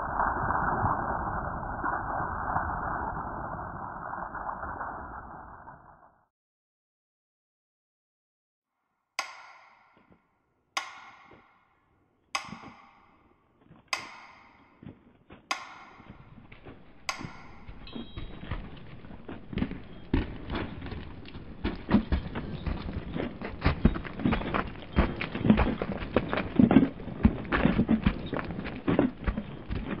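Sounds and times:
ringing strikes: 9.2 - 10.2, 10.8 - 13.3, 14.0 - 14.8, 15.5 - 19.2
steady clattering with knocks: 10.8 - 11.8, 12.4 - 30.0.

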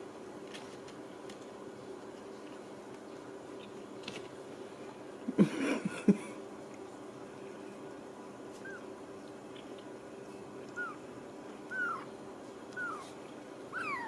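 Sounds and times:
kitten mewing: 10.7 - 11.0, 11.7 - 12.1, 12.8 - 14.0.

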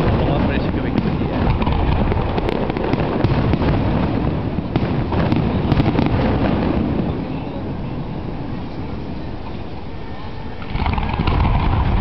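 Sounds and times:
sharp cracks: 0.0 - 6.6, 10.6 - 12.0
fireworks bursting: 0.0 - 12.0.

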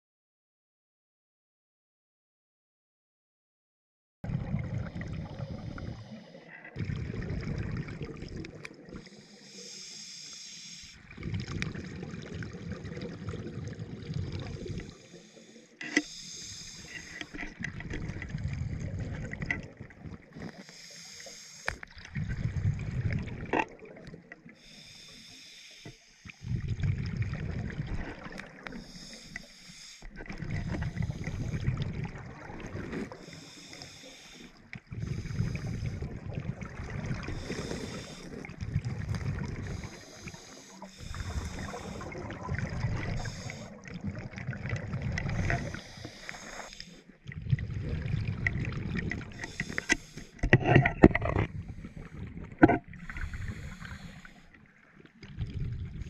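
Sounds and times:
low bubbling rumble: 4.2 - 6.1, 6.8 - 9.0, 17.6 - 20.3, 21.9 - 24.3, 26.4 - 28.7, 30.1 - 33.2, 34.8 - 40.0, 40.9 - 45.9, 47.2 - 49.4, 55.2 - 56.0
diver breathing hiss: 5.3 - 6.6, 9.0 - 11.1, 14.6 - 17.5, 20.4 - 21.8, 24.6 - 26.6, 28.5 - 31.8, 33.1 - 36.2, 37.2 - 38.5, 39.6 - 43.8, 45.2 - 47.2, 49.3 - 50.4, 53.0 - 54.5.

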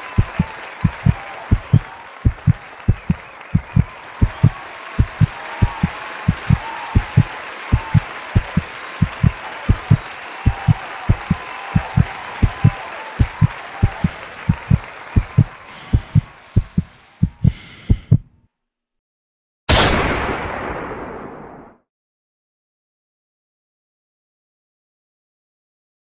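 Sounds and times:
heartbeat thumps: 0.2 - 18.3.

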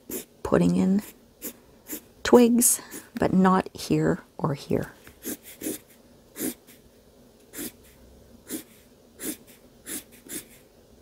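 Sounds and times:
marker strokes on paper: 5.2 - 6.8.

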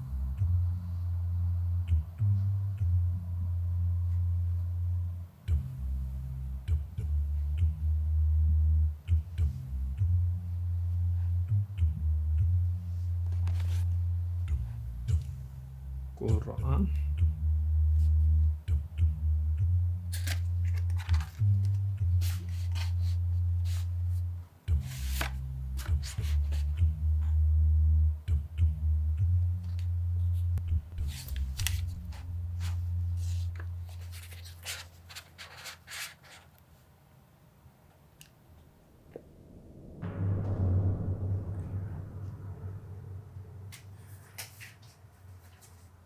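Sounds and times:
cardboard and paper rustling: 33.4 - 36.6
low musical drone: 38.6 - 45.2.

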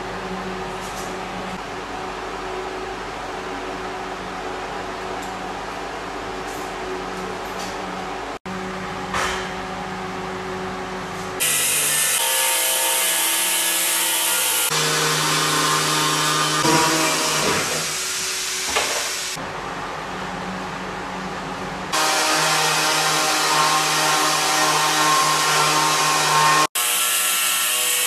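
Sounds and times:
power tool grinding stone: 11.4 - 19.4.

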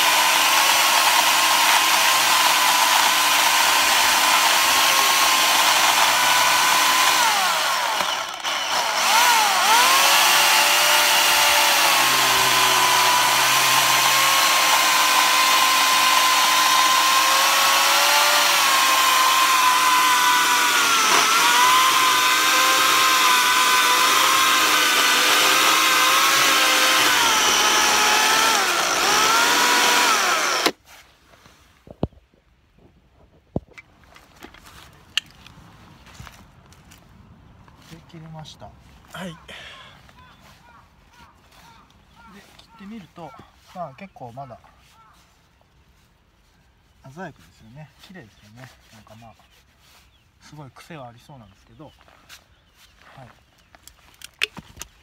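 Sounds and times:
electric chainsaw cutting log: 0.0 - 30.8.

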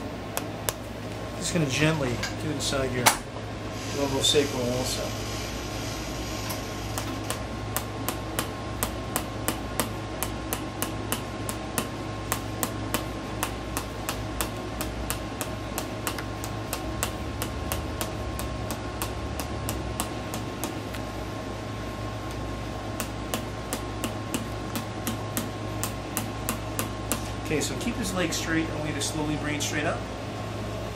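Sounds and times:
reflex hammer tapping metal: 7.0 - 20.9, 23.0 - 27.3.

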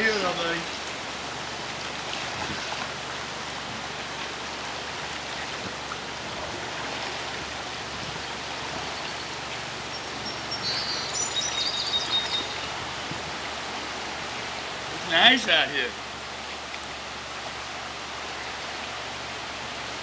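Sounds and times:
floodwater rushing: 0.0 - 20.0
bird chirping: 8.8 - 12.8.

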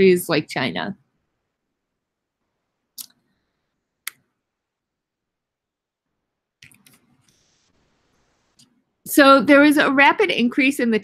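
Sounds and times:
computer mouse clicks: 6.6 - 7.6.

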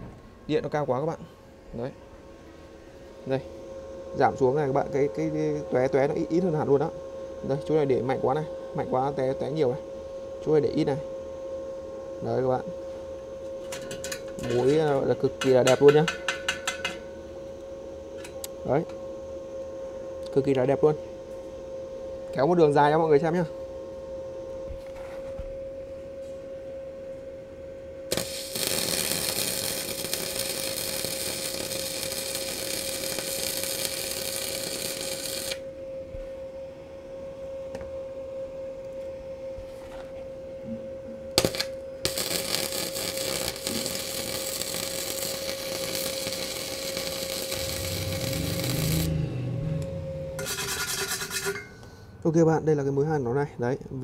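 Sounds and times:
welding arc crackling and hissing: 28.1 - 35.6, 41.4 - 49.1
steady tone: 43.5 - 53.2.

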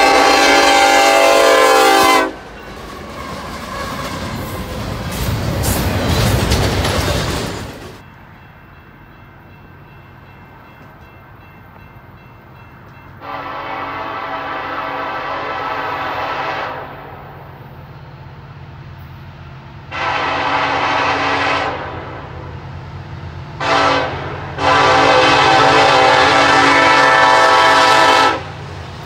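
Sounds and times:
train air horn blasts: 0.0 - 2.5, 13.2 - 17.2, 19.9 - 22.4, 23.6 - 28.6
diesel locomotive drone: 0.0 - 29.0.

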